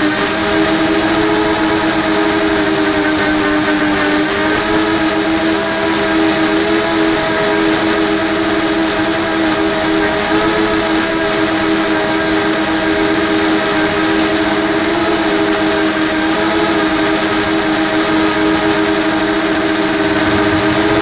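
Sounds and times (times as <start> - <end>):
drone motors buzzing whine: 0.0 - 21.0
rushing air hiss: 19.8 - 21.0.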